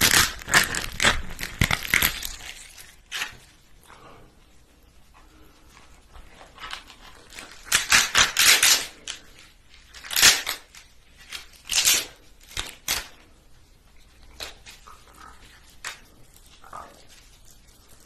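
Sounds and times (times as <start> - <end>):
lobster shell cracking: 0.0 - 3.4, 6.6 - 9.2, 9.9 - 13.2.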